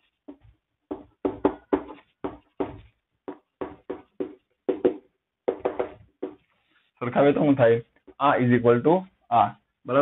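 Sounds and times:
writing taps on a board: 0:00.3 - 0:06.5.

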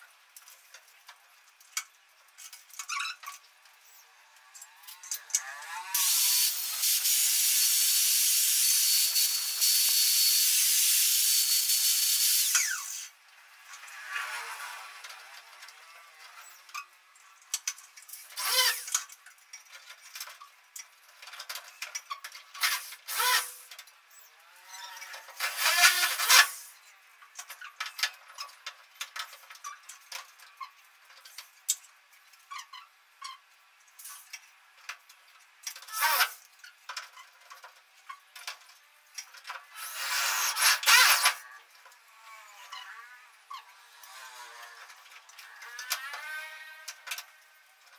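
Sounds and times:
electric drill bursts: 0:05.7 - 0:13.1, 0:18.4 - 0:18.9, 0:22.6 - 0:23.6, 0:25.4 - 0:26.7, 0:39.8 - 0:41.4.

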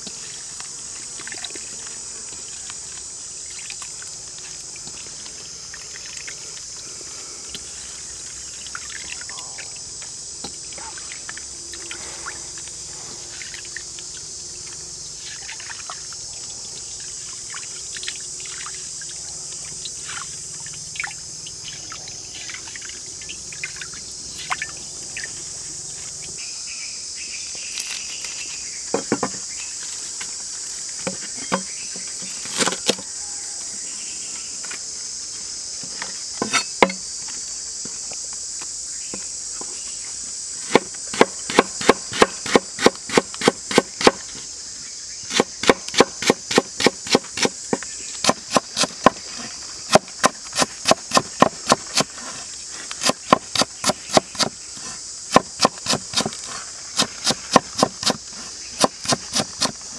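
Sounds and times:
insects droning: 0:00.0 - 0:59.9
knife chopping on wooden board: 0:40.7 - 0:44.2, 0:45.3 - 0:47.5, 0:55.3 - 0:56.4, 0:57.0 - 0:58.2.

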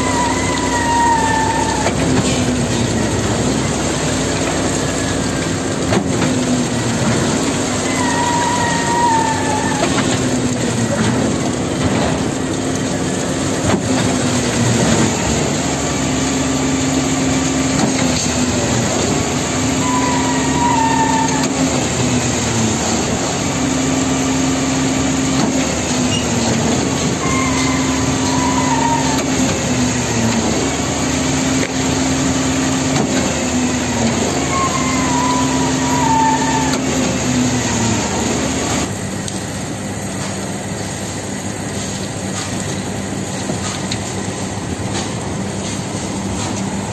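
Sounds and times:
short squeal falling in pitch: 0:00.0 - 0:02.0, 0:07.8 - 0:10.0, 0:19.8 - 0:21.6, 0:27.2 - 0:29.5, 0:34.4 - 0:36.9
concrete pump running: 0:00.0 - 0:46.9.

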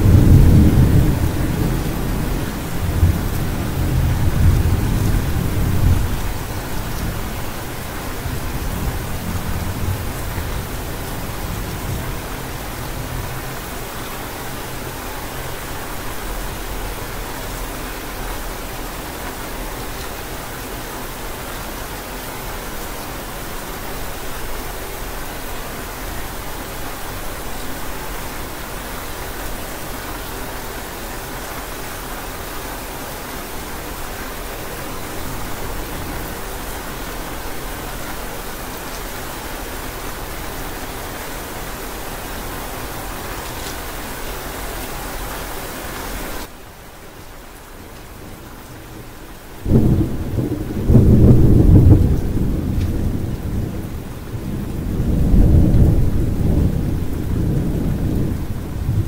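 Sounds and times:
thunder rumbling: 0:00.0 - 0:13.6, 0:49.6 - 0:59.0
rain hissing: 0:00.0 - 0:59.0.

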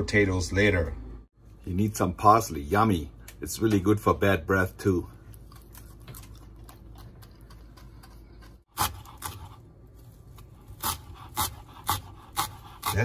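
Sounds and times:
knife chopping on cutting board: 0:10.8 - 0:13.0.

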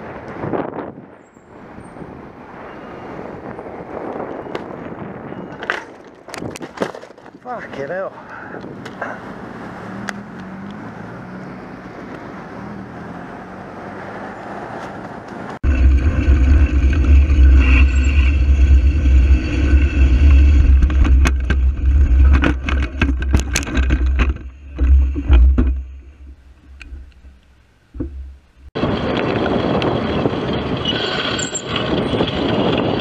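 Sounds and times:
outdoor background noise: 0:00.0 - 0:33.0
cars passing: 0:07.6 - 0:22.8
loud low rumble: 0:15.6 - 0:26.4
knocks and rattles: 0:15.6 - 0:28.7.

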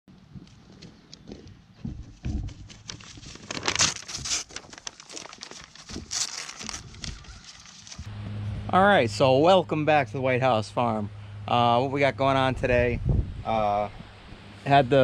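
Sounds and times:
goat chewing paper: 0:01.8 - 0:08.1
paper crinkling and tearing: 0:02.3 - 0:08.1.

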